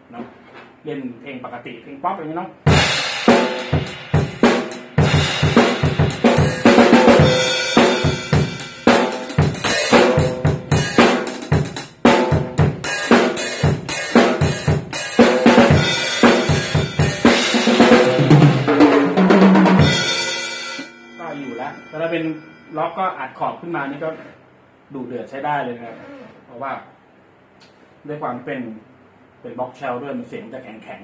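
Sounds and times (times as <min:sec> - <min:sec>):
drum fill on lower drums: 0:02.7 - 0:20.3
drum kit groove: 0:02.7 - 0:20.9.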